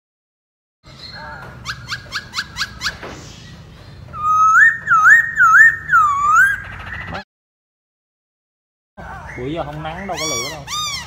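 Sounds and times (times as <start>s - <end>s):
bird singing whistled notes: 4.2s - 7.2s.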